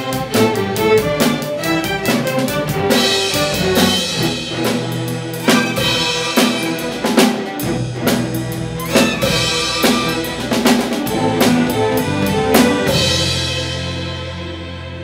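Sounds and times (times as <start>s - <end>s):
drum kit beat: 0.0s - 14.4s
string orchestra playing: 0.0s - 15.0s.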